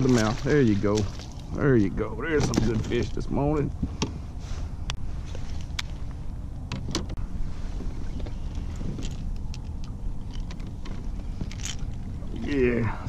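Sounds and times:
steady low rumble: 0.0 - 13.0
fishing gear clicks and knocks: 2.4 - 3.2, 8.2 - 12.6.

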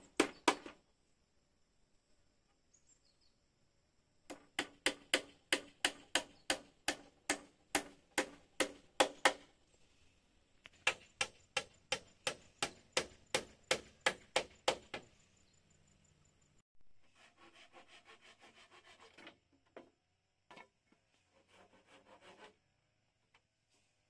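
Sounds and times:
chopping strikes on wood: 0.1 - 0.8, 4.3 - 9.5, 10.8 - 15.1.

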